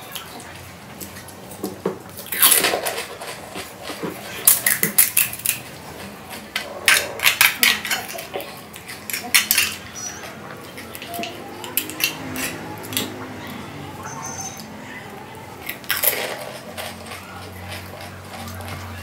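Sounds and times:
crisp shells cracking: 2.1 - 9.9, 15.6 - 19.0.

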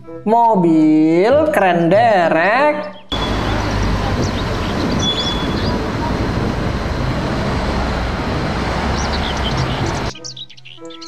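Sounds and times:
diesel engine low rumble: 3.1 - 10.2
street traffic noise: 3.1 - 10.2.

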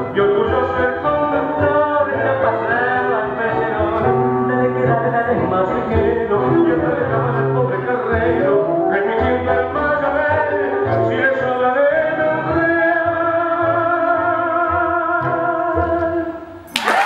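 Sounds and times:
person singing tango song: 0.0 - 16.7.

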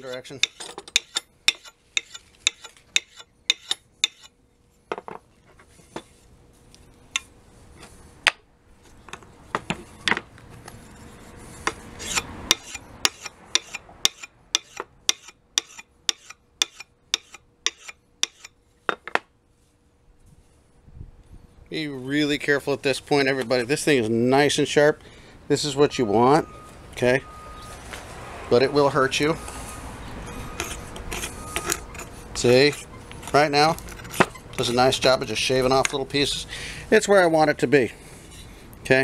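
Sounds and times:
axe scraping on sharpening stone: 0.0 - 4.4, 11.7 - 18.6, 30.2 - 34.7.

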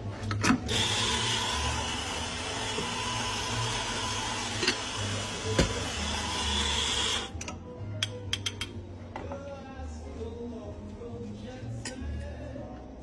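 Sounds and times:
background music: 0.0 - 13.0
coffee grinder whirring: 0.7 - 7.3.

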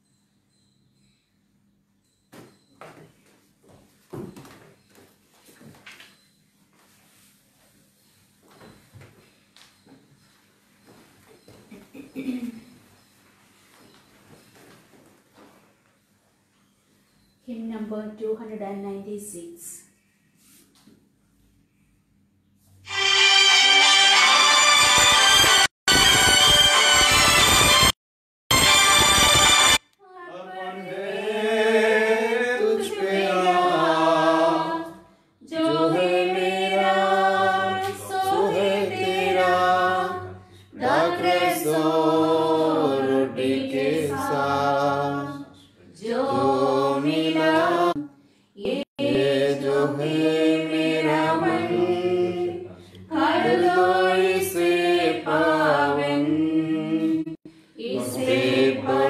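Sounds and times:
voices singing a hymn: 29.7 - 59.0.

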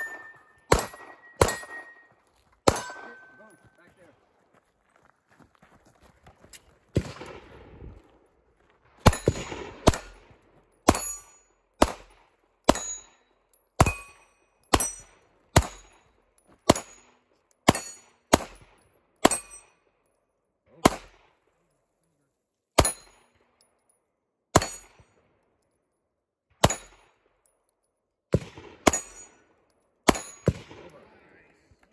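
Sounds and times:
gunshots: 0.0 - 2.0, 2.6 - 3.5, 6.9 - 7.9, 9.0 - 11.2, 11.8 - 13.1, 17.7 - 19.6, 20.8 - 21.4, 24.5 - 25.0, 26.6 - 27.0, 28.3 - 29.4, 30.1 - 31.2
steel target ringing: 0.0 - 3.6.

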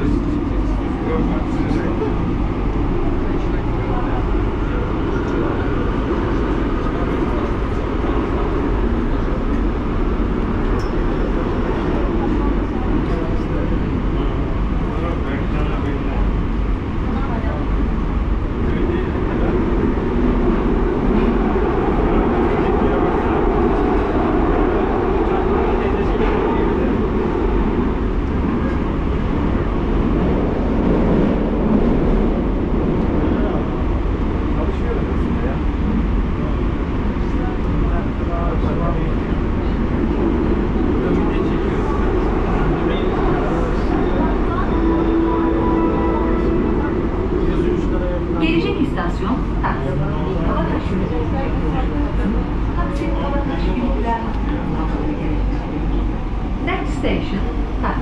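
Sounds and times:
constant low drone: 0.0 - 58.0
metro train wheels rumbling: 0.0 - 58.0.

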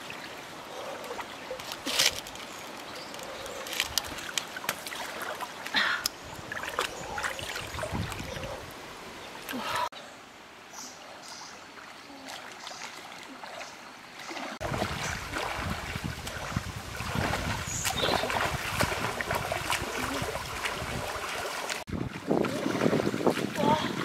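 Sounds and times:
person wading through water: 0.0 - 9.9, 10.9 - 24.0.

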